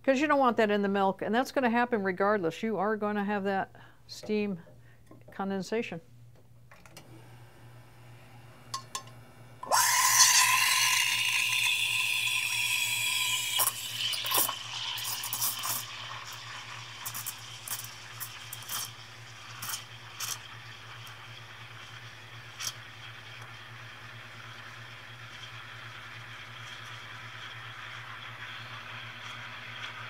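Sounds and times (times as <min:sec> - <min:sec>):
steam wand hissing and whistling: 0:09.7 - 0:18.9.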